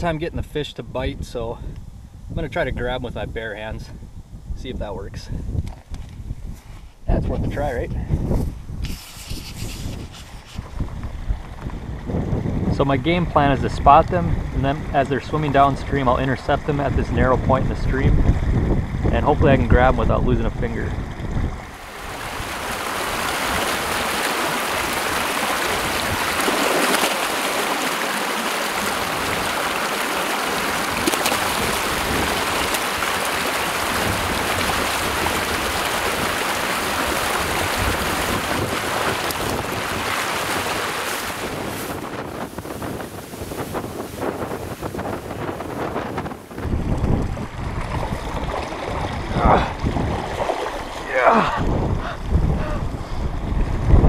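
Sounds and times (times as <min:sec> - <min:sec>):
stream rushing over rocks: 0:21.6 - 0:51.8.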